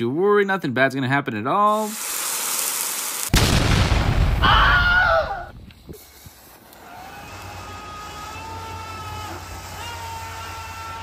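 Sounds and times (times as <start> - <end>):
firework fuse hissing: 1.7 - 3.6, 5.6 - 11.0
fountain firework rushing blast: 1.8 - 4.5.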